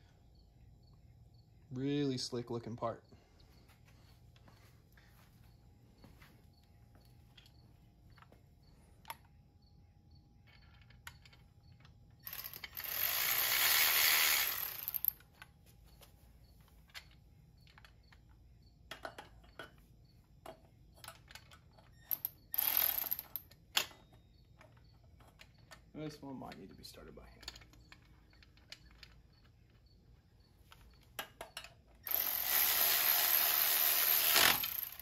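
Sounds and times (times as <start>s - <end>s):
metal parts clinking: 10.4s - 15.5s, 20.4s - 35.0s
ratchet wrench ratcheting: 12.2s - 15.2s, 22.1s - 23.5s, 32.0s - 35.0s.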